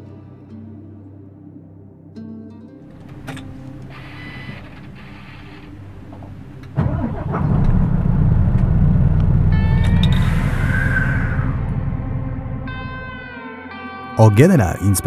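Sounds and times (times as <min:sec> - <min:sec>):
diesel engine cranking and idling: 0:02.9 - 0:13.2.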